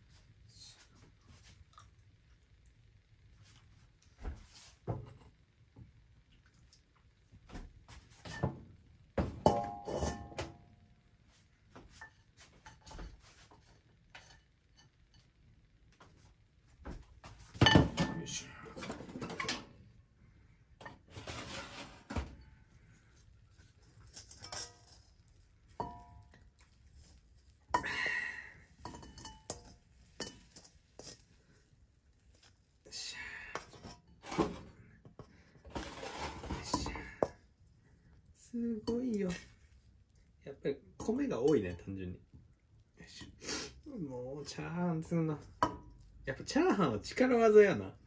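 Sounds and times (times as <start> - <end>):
utensil scraping a wok: 23.6 - 37.4.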